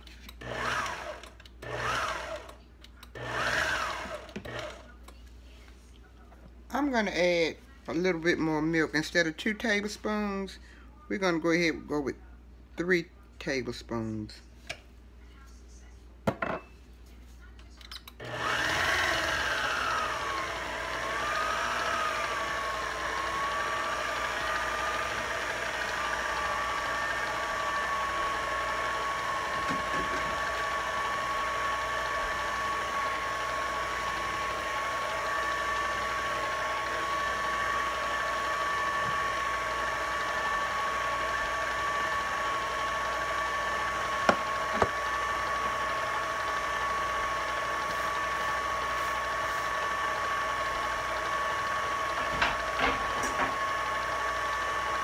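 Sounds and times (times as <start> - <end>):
electric mixer motor whine: 0.1 - 5.0, 18.2 - 55.0.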